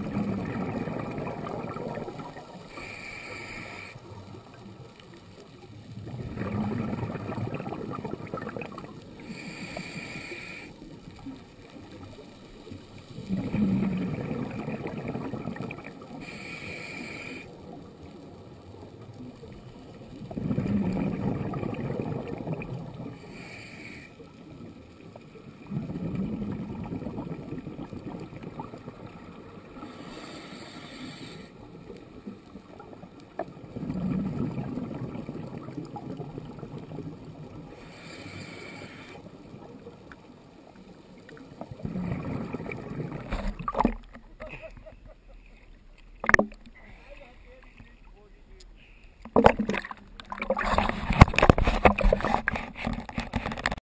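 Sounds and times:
exhaled bubbles underwater: 0.0 - 45.0, 49.3 - 53.6
regulator hissing inhale: 2.7 - 4.1, 9.2 - 10.8, 16.2 - 17.5, 23.2 - 24.3, 29.8 - 31.6, 37.7 - 39.3.

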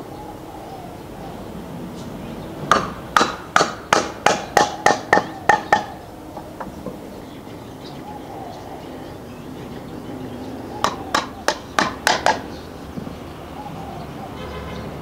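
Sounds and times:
hammer striking wood: 2.7 - 6.0, 10.8 - 13.1.

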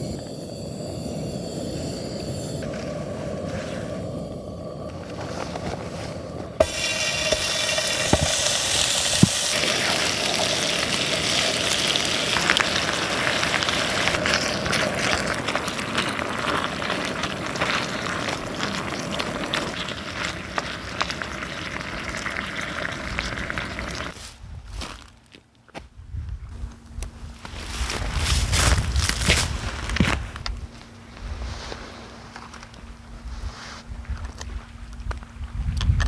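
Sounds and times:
meat and vegetables sizzling in oil: 6.6 - 24.2.

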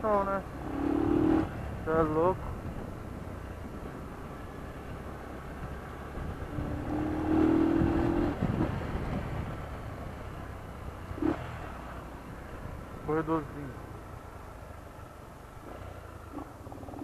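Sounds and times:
motorcycle engine rumbling: 0.0 - 17.0.

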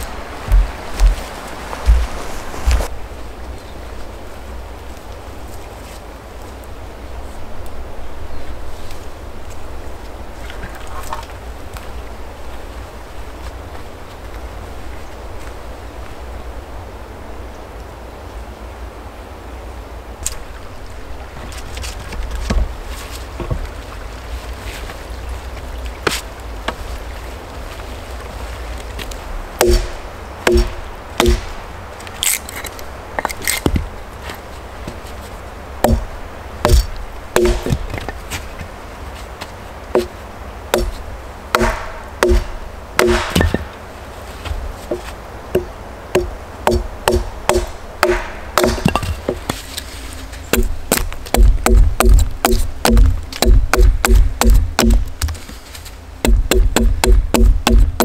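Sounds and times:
wind on microphone: 0.0 - 3.4
hatchet knocking wooden stake: 29.6 - 31.5, 35.8 - 36.0, 36.6 - 38.1, 40.7 - 43.7, 45.6 - 49.6, 50.5 - 55.3, 56.2 - 58.0
wood being chopped: 29.6 - 31.6, 35.8 - 38.2, 40.0 - 43.7, 44.5 - 49.6, 50.5 - 55.4, 56.2 - 58.0.

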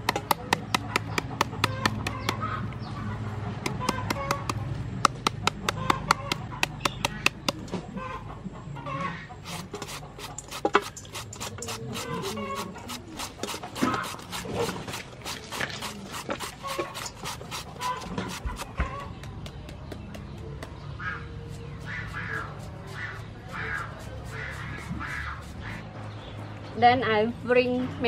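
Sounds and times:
knife chopping mango: 0.0 - 2.4, 3.6 - 7.7, 9.4 - 18.8
chickens clucking: 0.0 - 26.7.

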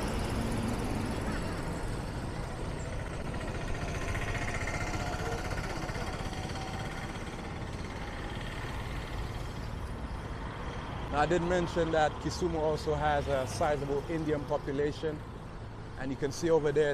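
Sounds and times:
motorcycle engines: 0.0 - 16.9
road traffic noise: 0.0 - 16.9
truck engines: 0.0 - 16.9.

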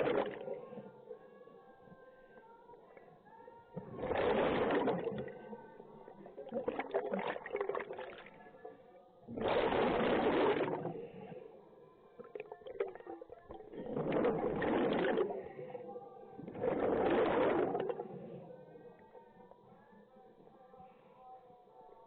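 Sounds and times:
exhaled bubbles burbling: 0.0 - 0.9, 3.8 - 8.7, 9.3 - 11.4, 12.2 - 18.8.

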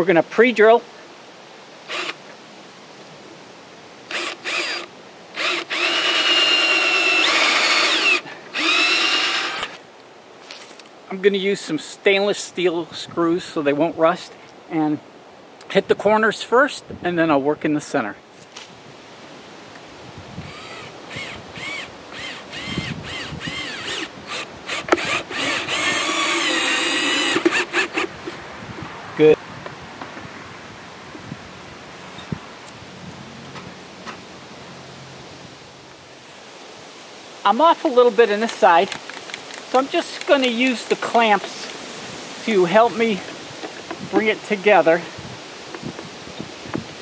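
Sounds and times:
cordless drill motor whine: 1.9 - 2.2, 4.1 - 9.8, 20.4 - 28.1.

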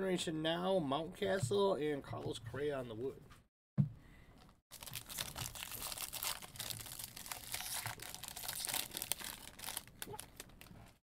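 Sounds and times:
foil wrapper crinkling and tearing: 4.7 - 11.0.

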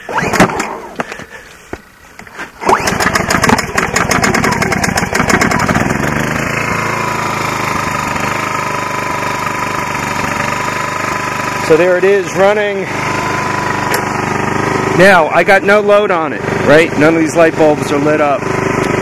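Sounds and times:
generator engine starting and running: 0.0 - 19.0.

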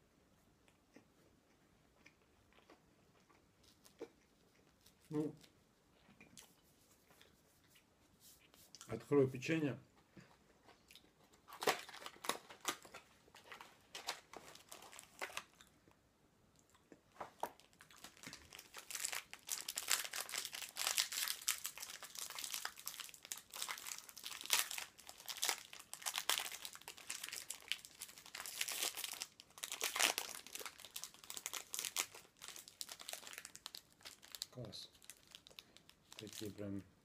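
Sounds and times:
foil wrapper crinkling: 11.5 - 15.6, 17.4 - 36.7.

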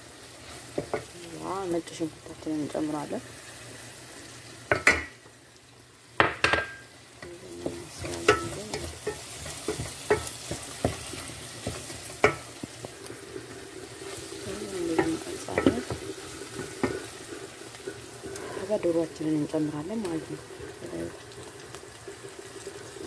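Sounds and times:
onions sizzling in pot: 0.0 - 23.0
wooden spoon knocking pot: 6.2 - 6.8, 7.6 - 12.5, 14.9 - 16.0.

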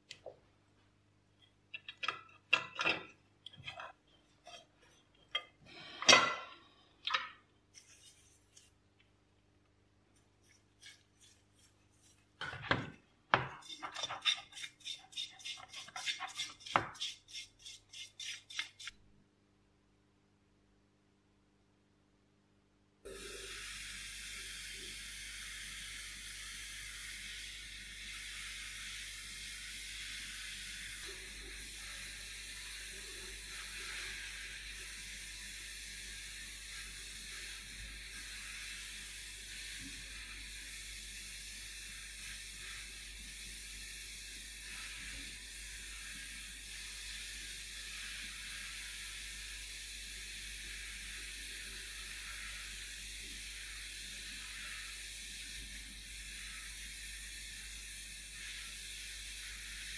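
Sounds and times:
compressed air and grit hissing: 23.1 - 59.9.

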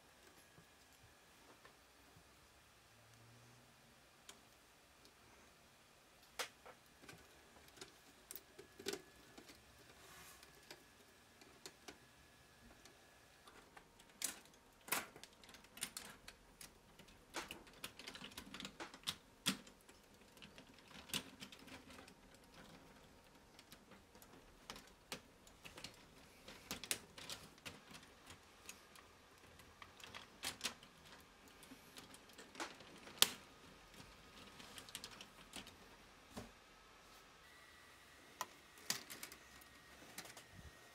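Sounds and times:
plastic parts clicking and snapping: 6.2 - 12.0, 12.8 - 35.9, 38.4 - 40.5.

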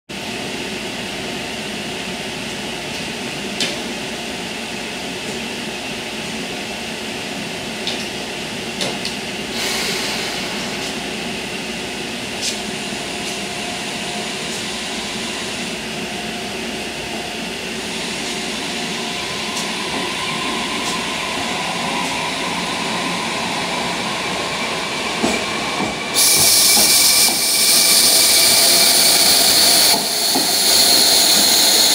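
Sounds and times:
railcar machinery hum: 0.2 - 31.9
loud hiss: 26.1 - 31.9.

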